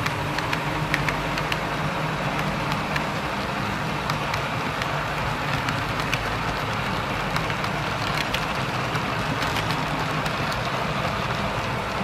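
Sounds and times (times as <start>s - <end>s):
model train cars rolling: 4.2s - 12.0s.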